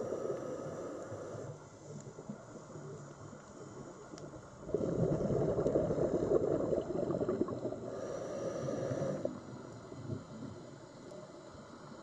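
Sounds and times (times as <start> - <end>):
underwater breath bubbles gurgling: 3.7 - 10.9.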